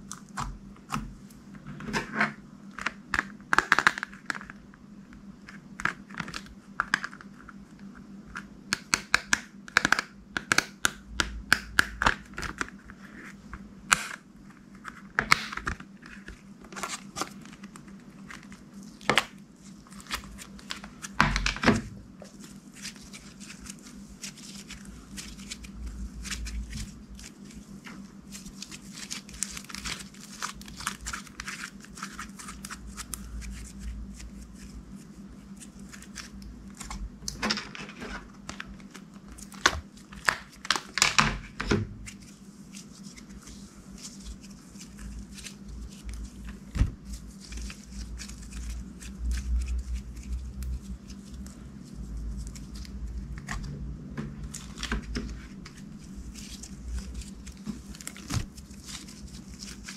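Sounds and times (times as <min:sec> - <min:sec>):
hands kneading sticky slime: 0:22.2 - 0:37.0.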